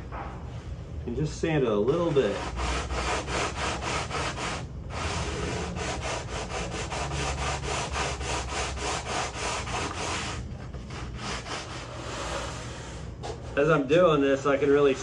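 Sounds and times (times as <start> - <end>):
sandpaper rubbing on wood edge: 2.0 - 13.0.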